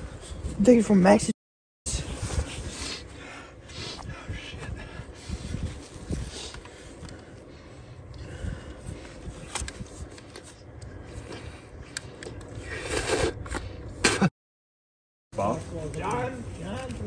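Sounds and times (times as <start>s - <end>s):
clothing and dry grass rustling: 2.0s - 11.3s.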